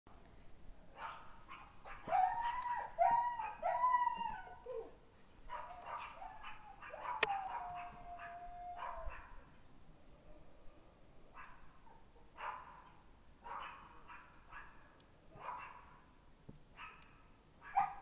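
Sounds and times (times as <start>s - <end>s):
dog yelping barks: 1.0s - 4.9s, 5.5s - 9.4s, 11.4s - 12.9s, 13.5s - 16.0s, 16.8s - 18.0s
dog howling: 2.0s - 4.9s, 5.8s - 9.3s.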